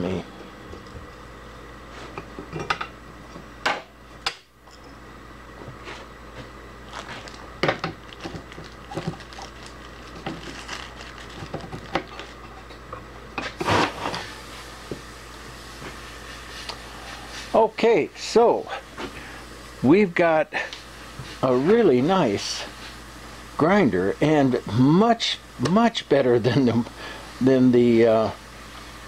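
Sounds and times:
steady low hum: 0.0s - 29.0s
parts clattering: 6.9s - 14.2s.

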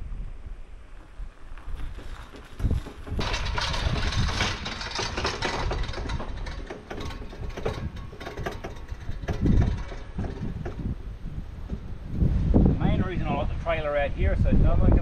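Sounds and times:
rattling clatter: 1.5s - 12.2s.

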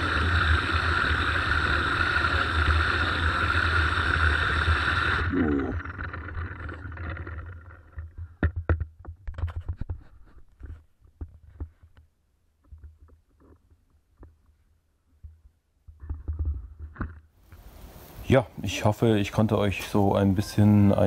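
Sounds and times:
pressure washer spraying: 0.0s - 5.2s
motor winding down whine: 0.0s - 8.1s.

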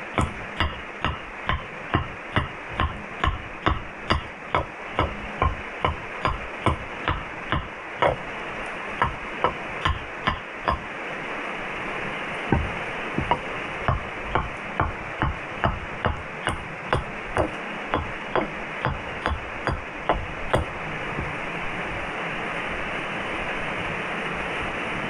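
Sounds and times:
steady hiss: 0.0s - 25.0s
music with ticking beat: 0.1s - 8.2s, 9.0s - 10.9s, 12.5s - 20.7s.

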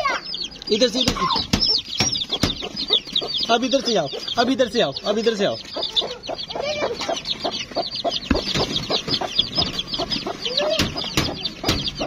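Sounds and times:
chicks peeping: 0.0s - 12.0s
hen clucking: 0.0s - 12.0s
sharp knocks: 0.9s - 3.3s, 8.2s - 12.0s.

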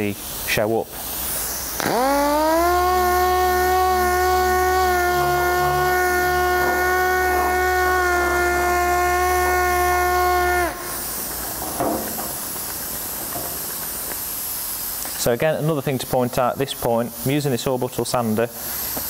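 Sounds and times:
orbital sander whining: 1.6s - 14.8s.

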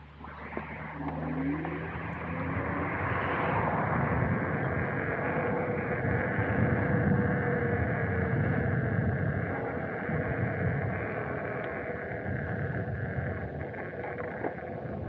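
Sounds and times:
street traffic: 0.0s - 6.7s
faint steady hum: 0.0s - 15.0s
road and wind noise: 0.0s - 15.0s.

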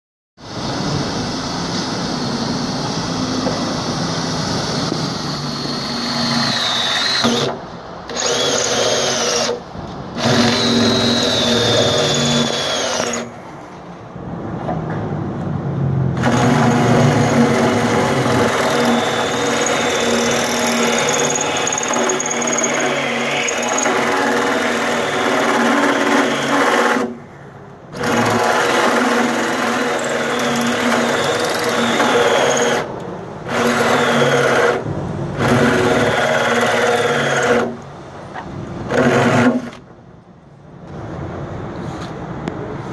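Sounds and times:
cordless drill cutting steel: 1.3s - 9.6s, 10.2s - 13.4s, 16.2s - 27.2s, 28.0s - 32.9s, 33.5s - 34.8s, 35.4s - 37.8s.

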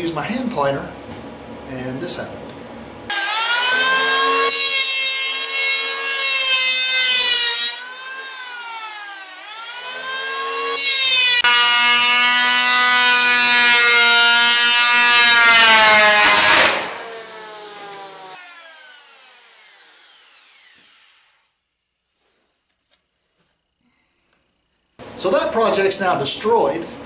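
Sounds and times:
electric hand planer whining: 3.1s - 21.5s.

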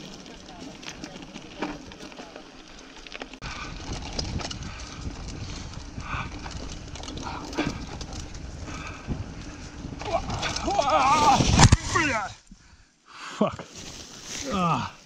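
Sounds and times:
bike rattling over bumps: 0.0s - 12.2s
bike tyres on dirt trail: 0.0s - 15.0s
wind rumble on microphone: 3.4s - 12.0s.

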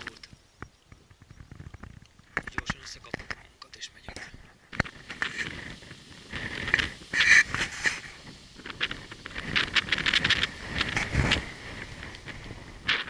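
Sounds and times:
footsteps on stony path: 4.1s - 13.0s.

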